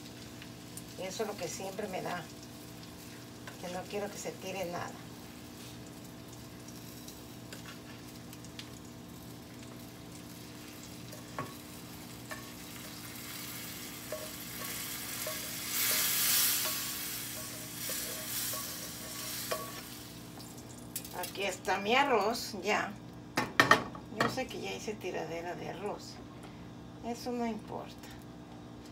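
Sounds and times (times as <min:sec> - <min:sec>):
hissing and sizzling: 0:00.0 - 0:21.8
spatula scraping frying pan: 0:12.3 - 0:20.0.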